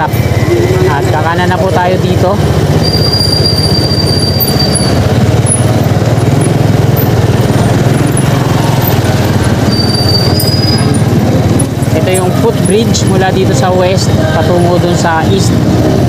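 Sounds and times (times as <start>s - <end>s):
motorcycle engine running: 0.0s - 16.0s
road and wind noise: 0.0s - 16.0s
thin high squeal: 9.6s - 11.0s.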